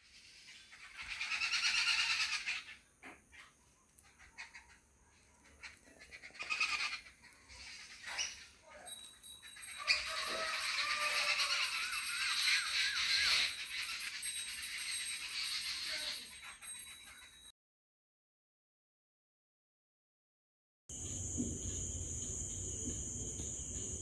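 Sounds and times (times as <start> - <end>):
birds chirping and twittering: 0.0 - 17.5, 20.9 - 24.0
harsh animal call: 9.7 - 14.2.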